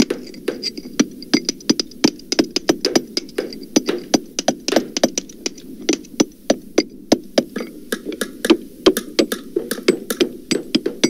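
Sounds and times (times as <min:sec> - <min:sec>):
hammer blows: 0:00.0 - 0:11.0.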